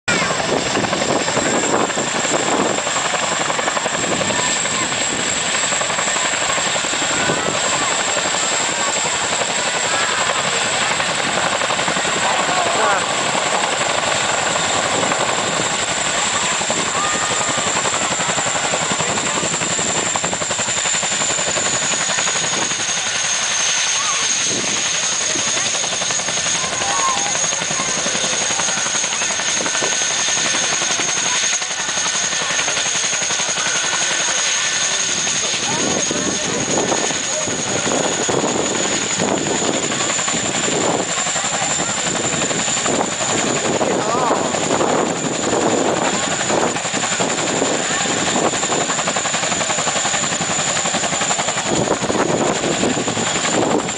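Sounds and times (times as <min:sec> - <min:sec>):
helicopter engine whine: 0:00.0 - 0:53.9
helicopter rotor chop: 0:00.1 - 0:53.9.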